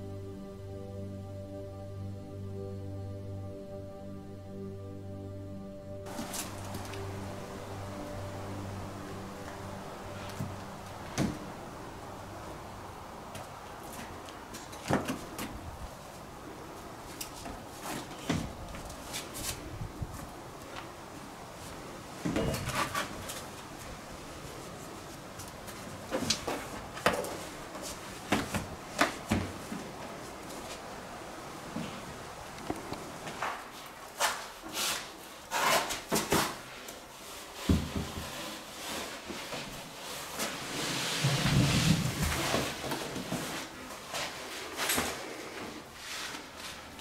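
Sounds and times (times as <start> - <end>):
clothing rustling: 6.0 - 47.0
shoes scuffing: 6.1 - 8.1, 25.4 - 30.9.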